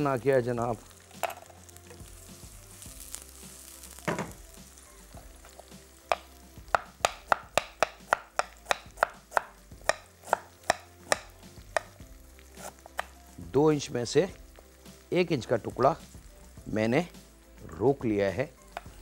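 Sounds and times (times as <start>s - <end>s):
onions frying in oil: 0.0s - 19.0s
knock: 4.1s - 4.4s
knife chopping on wooden board: 6.1s - 11.9s.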